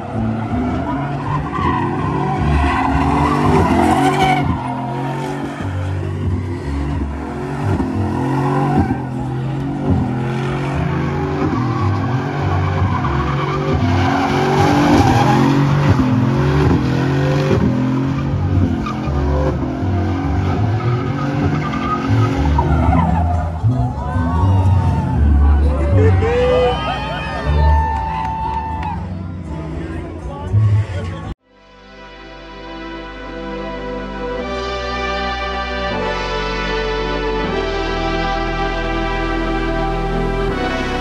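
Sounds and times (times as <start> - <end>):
tires squealing on pavement: 0.0 - 31.4
truck engine revving: 0.0 - 31.4, 34.0 - 41.0.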